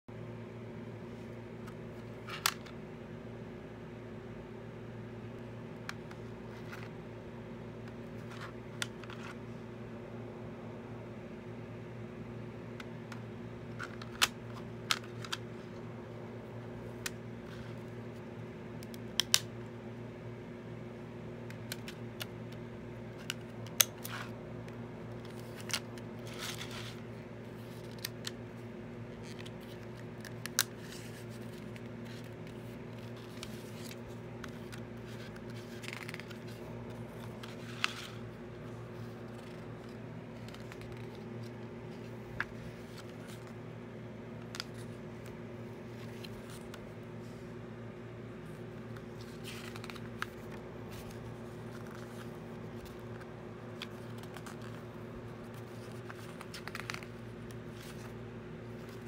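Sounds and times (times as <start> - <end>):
paper booklet rustling: 23.1 - 43.7, 44.3 - 47.5, 48.3 - 59.0.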